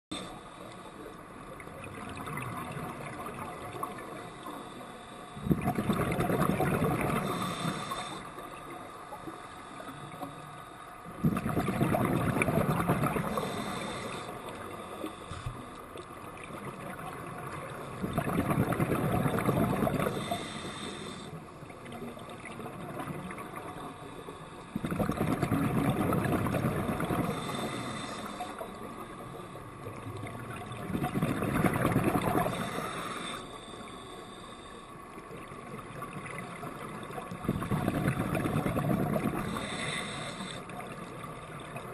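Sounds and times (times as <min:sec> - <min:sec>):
underwater exhaled bubbles: 0:00.1 - 0:34.0, 0:35.0 - 0:41.9
diver breathing: 0:06.9 - 0:08.6, 0:13.1 - 0:15.7, 0:19.7 - 0:21.6, 0:27.0 - 0:29.8, 0:32.2 - 0:35.1, 0:39.2 - 0:40.8.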